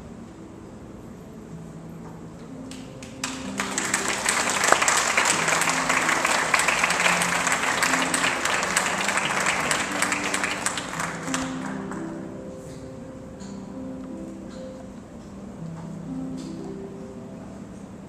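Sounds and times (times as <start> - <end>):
audience applauding: 3.0 - 12.2.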